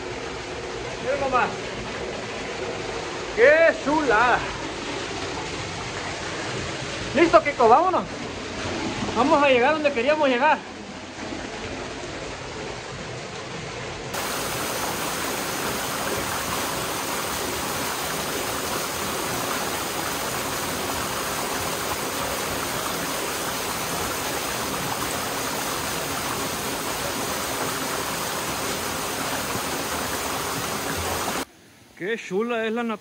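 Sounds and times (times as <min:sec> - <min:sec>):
waterfall rushing and splashing: 0:14.1 - 0:31.5.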